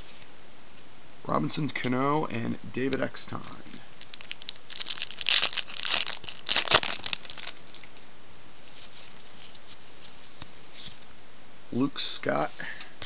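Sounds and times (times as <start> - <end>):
faint room hiss: 0.0 - 13.0
card pack wrapper crinkling: 4.0 - 8.0.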